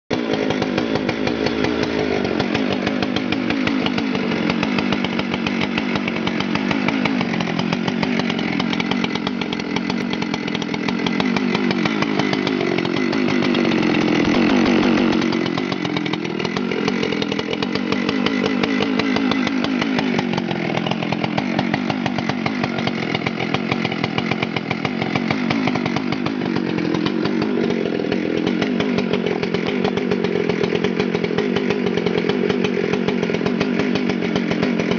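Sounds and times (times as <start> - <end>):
chainsaw engine running: 0.1 - 34.9.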